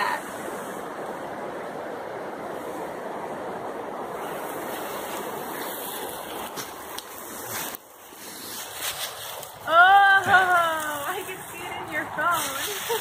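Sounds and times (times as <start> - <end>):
steady rushing noise: 0.0 - 13.0
rustles and snaps in brush: 6.4 - 9.6.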